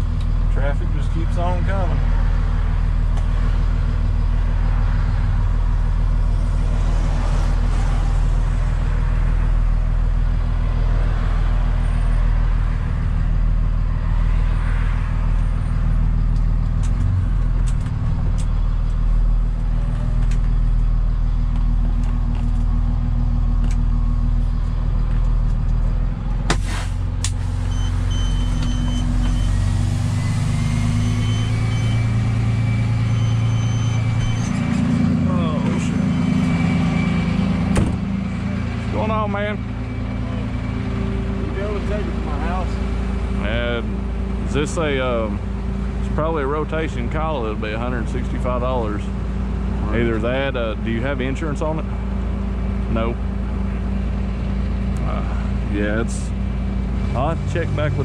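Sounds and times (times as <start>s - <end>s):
road noise: 0.0s - 58.0s
truck engine running: 0.0s - 58.0s
faint high beeping: 27.7s - 41.9s
sharp knock: 37.7s - 38.1s.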